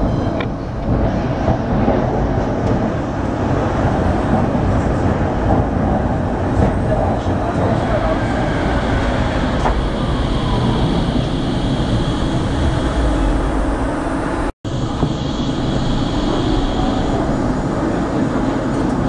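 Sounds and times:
tram wheels rumbling on rail: 0:00.0 - 0:19.0
high steady whine: 0:09.3 - 0:19.0.

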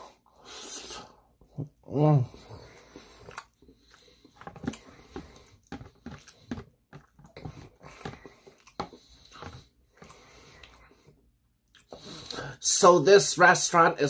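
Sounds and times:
wet chewing mouth smacks: 0:02.9 - 0:06.5.

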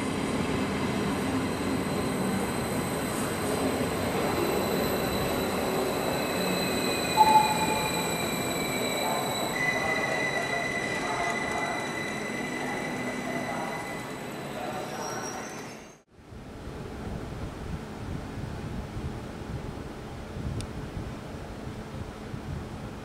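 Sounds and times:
train rumbling along track: 0:00.0 - 0:23.0
high-pitched whines: 0:01.4 - 0:16.0
wheel squeal: 0:01.4 - 0:16.0
brief loud tone: 0:04.4 - 0:14.2.

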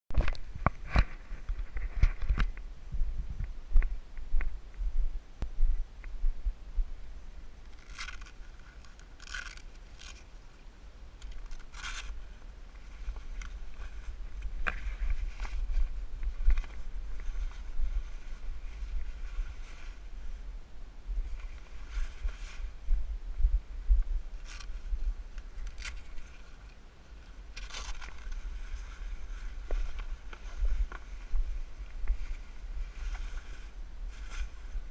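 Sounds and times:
low rumble: 0:00.3 - 0:34.9
fabric cover rustling: 0:11.4 - 0:20.4, 0:21.2 - 0:22.9, 0:24.4 - 0:34.9.

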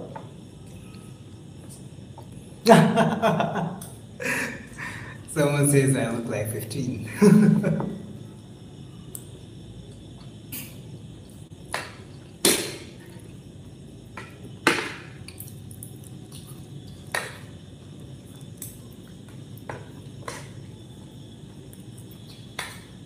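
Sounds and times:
low room hum: 0:00.0 - 0:23.0.

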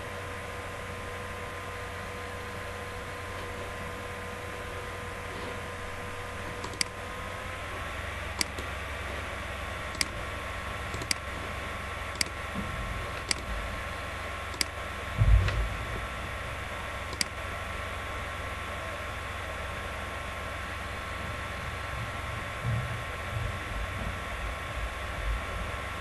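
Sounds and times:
background hum and hiss: 0:00.0 - 0:26.0
computer mouse clicking: 0:06.5 - 0:07.0, 0:08.3 - 0:08.7, 0:09.9 - 0:10.3, 0:10.9 - 0:11.3, 0:12.1 - 0:12.4, 0:13.1 - 0:13.5, 0:14.5 - 0:14.8, 0:17.1 - 0:17.4
dull low thump: 0:15.1 - 0:16.6, 0:22.0 - 0:25.7.

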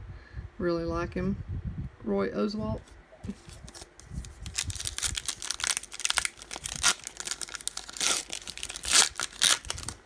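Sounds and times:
foil wrapper tearing and crinkling: 0:03.4 - 0:10.0.

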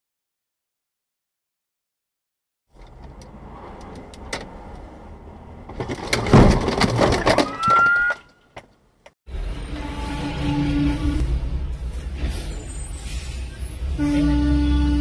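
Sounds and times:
street traffic noise: 0:02.7 - 0:15.0
car crash crunch: 0:05.6 - 0:08.7
knocks and clatter: 0:05.6 - 0:08.8.

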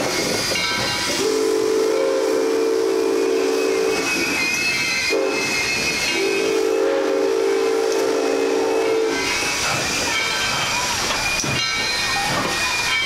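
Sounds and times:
steam hissing: 0:00.0 - 0:13.0
steam locomotive whistle: 0:00.2 - 0:09.6.

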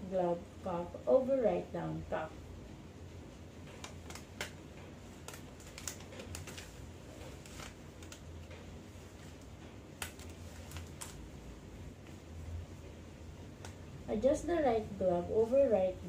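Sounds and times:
low steady hum: 0:00.0 - 0:16.0
surgical glove crinkling: 0:03.5 - 0:12.6.

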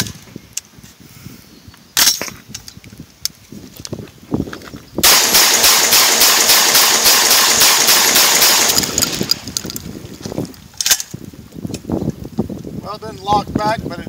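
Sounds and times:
shotgun fired rapidly: 0:05.0 - 0:09.6.

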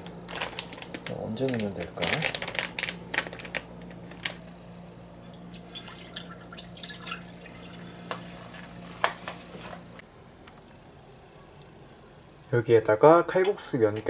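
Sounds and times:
packaging crinkling: 0:00.0 - 0:04.6
steady low hum: 0:00.0 - 0:14.0.

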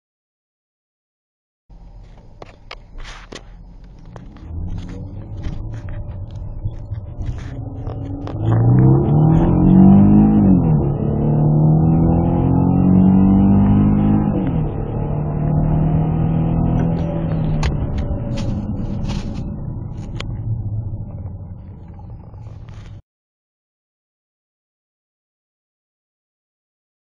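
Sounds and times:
car engine accelerating: 0:01.7 - 0:23.0.

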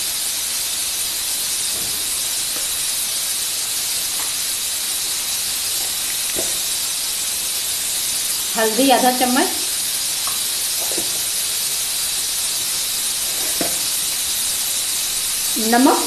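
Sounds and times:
masala sizzling in oil: 0:00.0 - 0:16.0
faint oil pops: 0:05.8 - 0:06.6.

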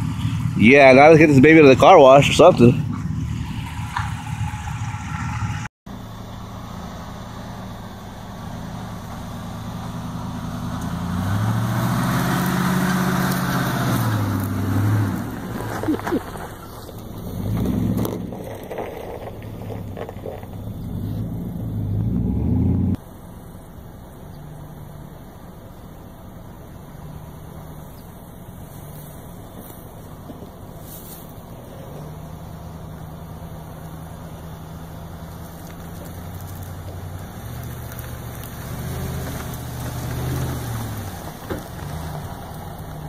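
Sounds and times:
pickup truck engine revving: 0:00.0 - 0:05.7, 0:08.2 - 0:23.0, 0:30.3 - 0:43.0.

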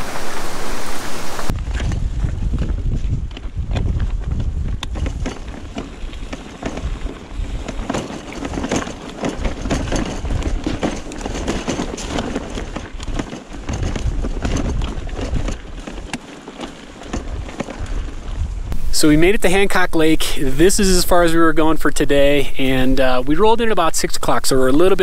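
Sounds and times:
wind rumble on microphone: 0:00.0 - 0:16.2, 0:17.0 - 0:19.7
tyres crunching on dirt and stones: 0:01.4 - 0:19.8
bike clicks and rattles: 0:01.5 - 0:18.8.

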